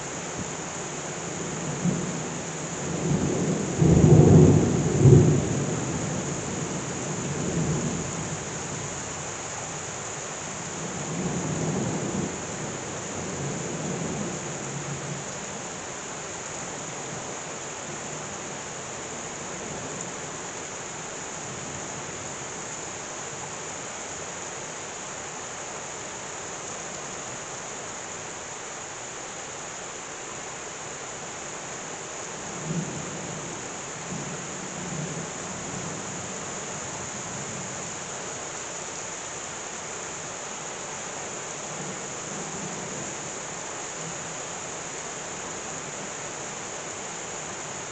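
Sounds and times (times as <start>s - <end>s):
heavy rain pouring: 0.0s - 47.9s.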